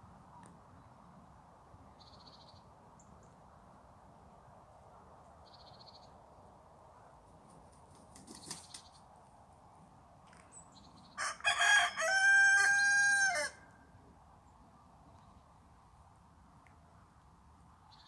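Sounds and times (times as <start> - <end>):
rooster crowing: 11.2 - 13.8.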